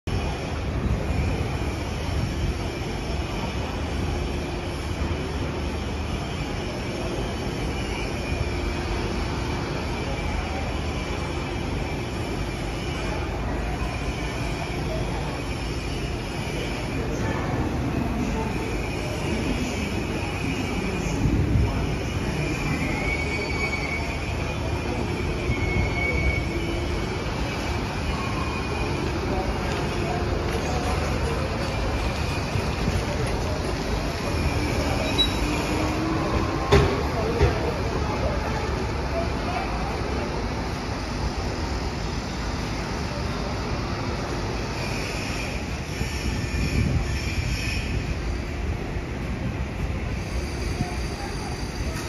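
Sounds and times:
tram hum and low rumble: 0.0s - 52.0s
high wavering whine: 0.1s - 52.0s.

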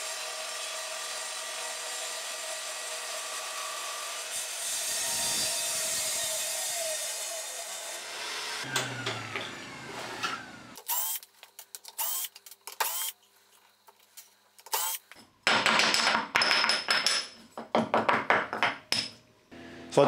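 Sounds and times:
cordless drill whirring: 12.0s - 13.2s, 14.7s - 15.0s.

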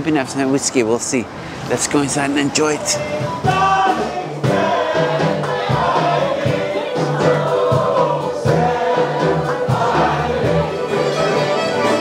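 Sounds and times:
repeated bass notes: 3.0s - 12.0s.

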